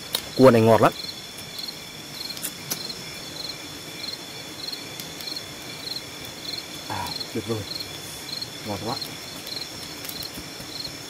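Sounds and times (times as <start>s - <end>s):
insect chirping in pulses: 0.0s - 11.0s
insect chorus trilling: 0.0s - 11.0s.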